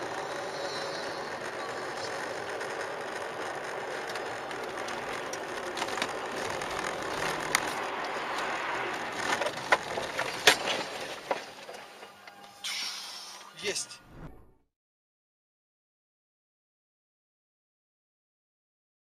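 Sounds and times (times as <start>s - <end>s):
car road and cabin noise: 0.0s - 14.2s.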